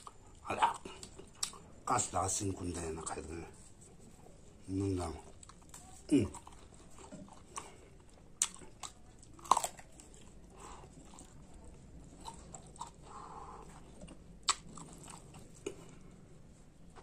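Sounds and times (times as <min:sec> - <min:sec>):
person chewing food: 0:00.0 - 0:17.0
wet mouth smacks and clicks: 0:14.1 - 0:15.0.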